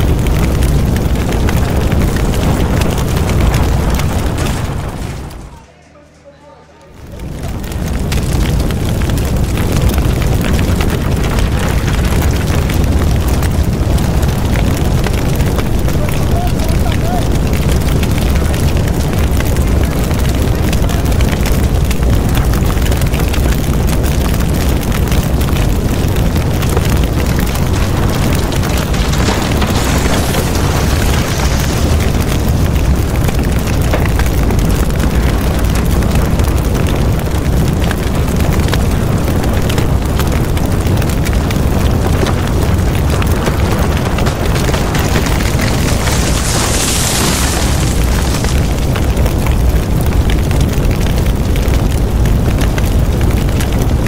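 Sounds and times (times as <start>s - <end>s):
fire hissing: 0.0s - 5.6s, 6.9s - 53.9s
fire cracks: 0.0s - 54.0s
large fire rumbling: 0.0s - 54.0s.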